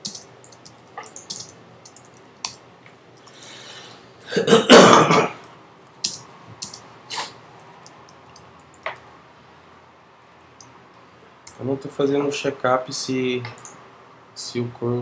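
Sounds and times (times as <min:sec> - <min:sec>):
computer keyboard keystrokes: 0:00.0 - 0:02.6, 0:06.0 - 0:06.8
person clearing throat: 0:04.2 - 0:05.4.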